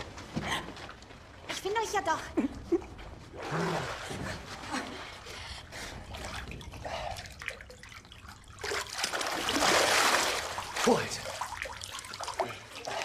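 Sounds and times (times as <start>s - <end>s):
water trickling and splashing: 3.3s - 13.0s.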